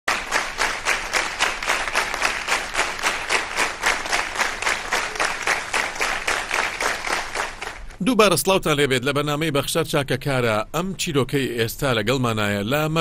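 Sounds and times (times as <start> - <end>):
audience clapping in unison: 0.0 - 8.0.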